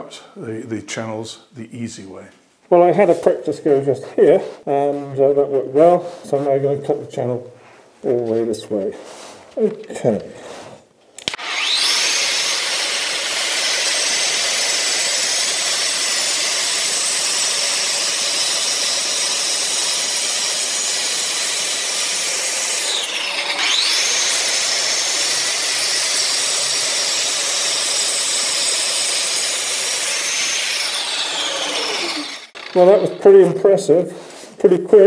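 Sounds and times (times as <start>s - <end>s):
wall chaser motor whining: 11.2s - 33.4s
diamond discs cutting plaster: 11.2s - 33.8s.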